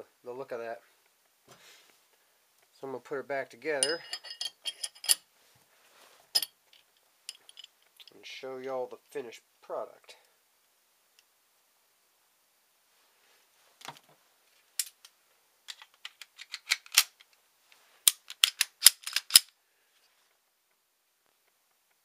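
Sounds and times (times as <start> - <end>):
pistol parts clicking and snapping: 15.7 - 17.4, 18.0 - 19.5.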